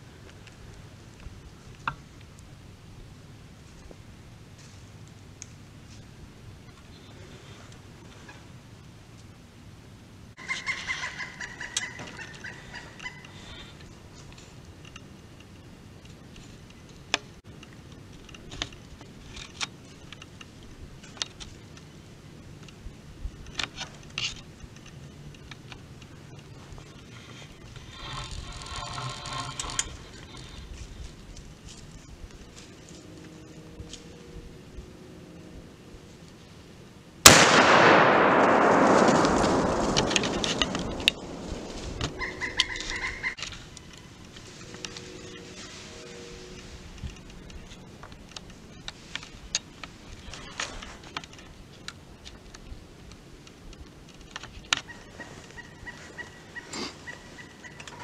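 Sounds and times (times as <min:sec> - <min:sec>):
quiet woodland background: 0:00.0 - 0:58.0
rustling: 0:17.7 - 0:34.9, 0:37.2 - 0:52.6
rifle shot echoing: 0:37.2 - 0:42.8.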